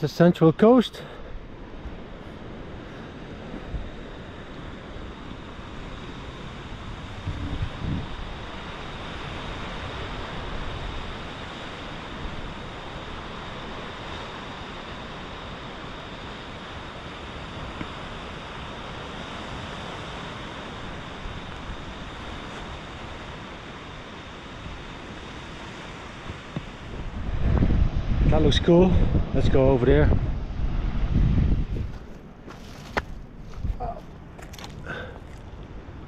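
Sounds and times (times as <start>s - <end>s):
ocean surf on rocks: 0.0s - 36.0s
wind: 0.0s - 36.0s
wind thumps on microphone: 7.1s - 8.2s, 26.2s - 34.8s.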